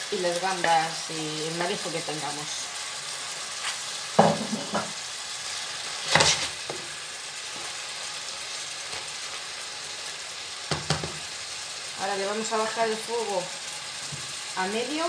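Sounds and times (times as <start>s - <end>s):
seafood sizzling in a pan: 0.0s - 15.0s
wooden spoon scraping a pan: 3.6s - 6.9s.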